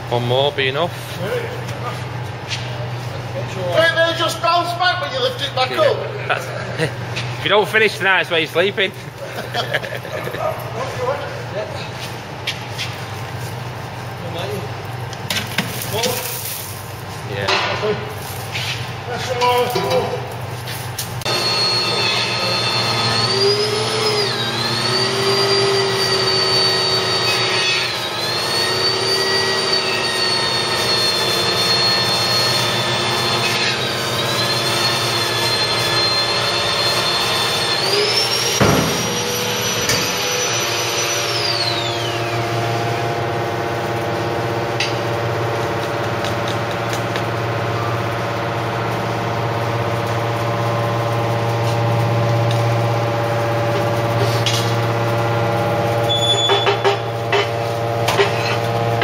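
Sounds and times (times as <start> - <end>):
hydraulic power unit humming: 0.0 - 59.0
high whine: 21.1 - 59.0.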